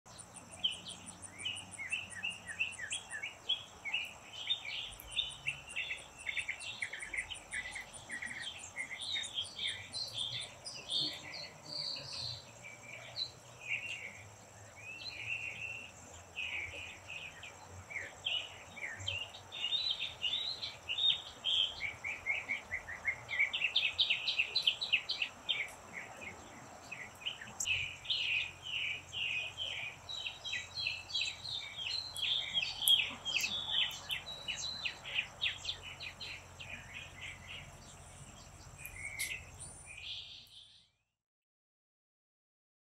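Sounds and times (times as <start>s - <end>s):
birds singing and chirping: 0.1s - 40.9s.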